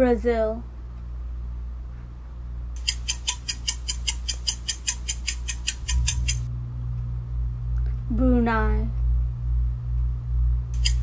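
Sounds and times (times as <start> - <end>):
low hum: 0.0 - 11.0
rapid ticking: 2.8 - 6.5.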